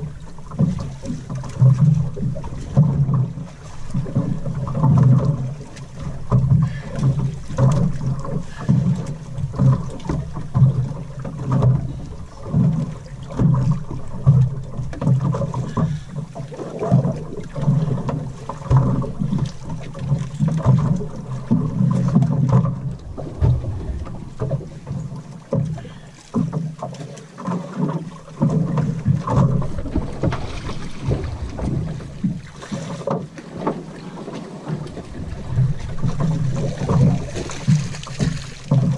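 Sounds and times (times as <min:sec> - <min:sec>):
water slapping boat hull: 0:00.0 - 0:38.9
wind buffeting microphone: 0:21.0 - 0:25.5, 0:29.0 - 0:32.6.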